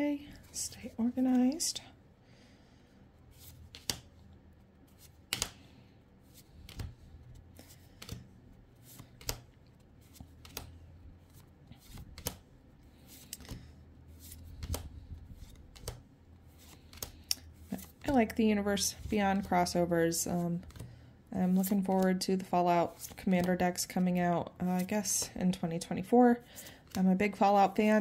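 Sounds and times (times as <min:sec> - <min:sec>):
cards snapping and clicking: 0:03.6 - 0:04.1, 0:05.0 - 0:05.7, 0:06.6 - 0:07.0, 0:07.6 - 0:08.3, 0:08.9 - 0:10.8, 0:11.8 - 0:12.4, 0:13.2 - 0:16.0, 0:16.6 - 0:18.0.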